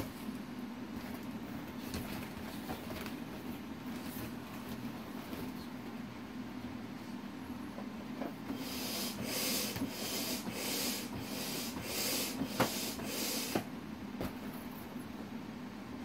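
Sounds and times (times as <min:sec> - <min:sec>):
steady low hum: 0:00.0 - 0:16.0
rhythmic hissing strokes: 0:08.5 - 0:13.7.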